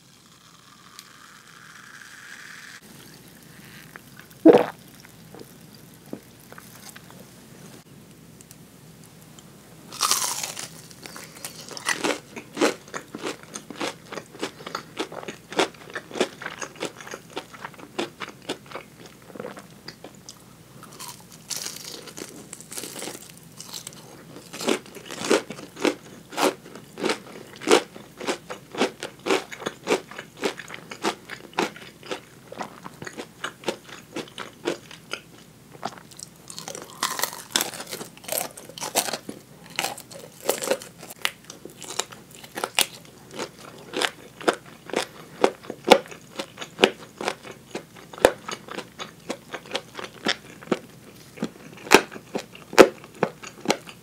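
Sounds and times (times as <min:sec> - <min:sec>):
chewing: 0:02.9 - 0:07.2, 0:10.0 - 0:54.0
crunching bites into fried chicken: 0:09.9 - 0:18.8, 0:20.9 - 0:32.2, 0:36.1 - 0:54.0.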